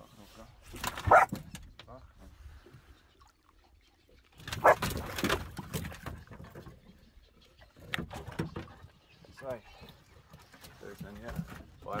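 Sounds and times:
dog barking: 0:01.1 - 0:01.4, 0:04.6 - 0:04.8.

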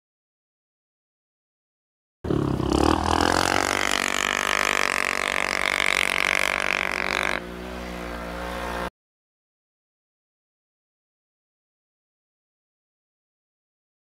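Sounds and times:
atv engine at high revs: 0:02.2 - 0:08.9.

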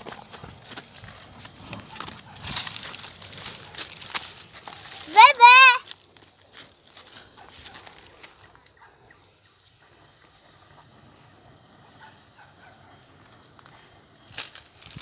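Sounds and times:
crackling crunches: 0:00.0 - 0:08.8, 0:13.2 - 0:15.0.

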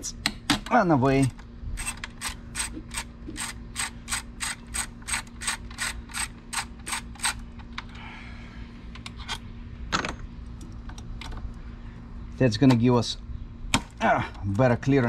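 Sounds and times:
ratchet wrench clicking: 0:01.2 - 0:07.4.

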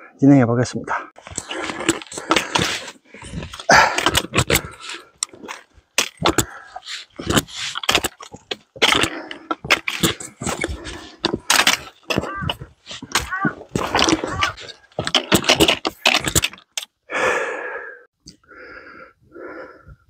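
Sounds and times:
boots scraping on rock: 0:01.2 - 0:16.5
trekking poles tapping on rock: 0:01.3 - 0:16.9.

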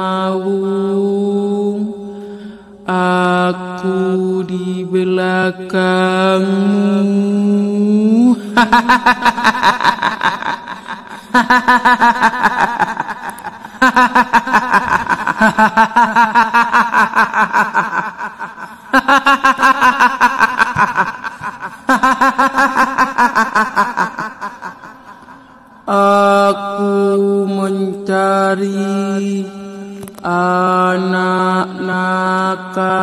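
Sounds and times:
woman cackling: 0:08.6 - 0:25.4.

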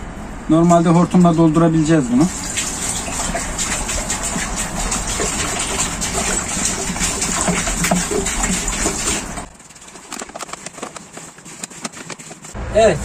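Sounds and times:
water pouring and glugging: 0:02.2 - 0:12.6.

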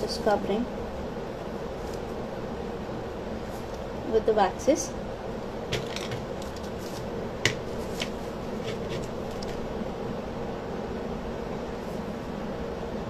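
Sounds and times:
background hum: 0:00.0 - 0:13.0.

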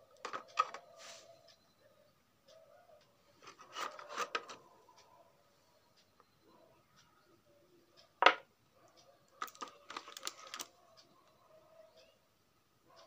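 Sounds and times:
plastic tray rubbing and clicking: 0:00.2 - 0:00.8, 0:03.4 - 0:04.6.

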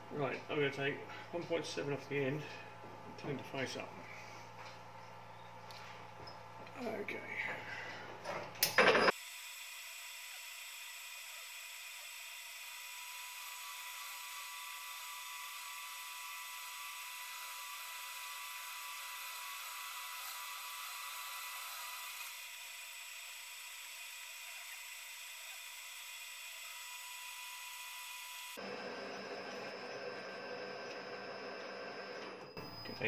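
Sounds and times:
metal lathe whine: 0:08.6 - 0:33.0.

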